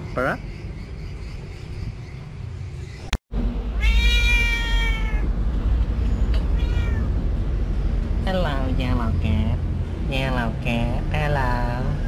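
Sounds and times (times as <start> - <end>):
steady low rumble: 0.0 - 12.0
cat meowing: 3.8 - 5.3, 6.4 - 7.1.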